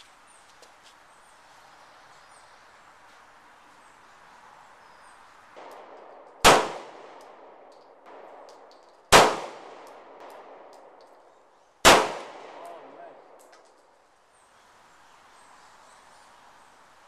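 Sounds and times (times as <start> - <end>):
pistol shots: 5.6 - 11.2, 11.8 - 13.6.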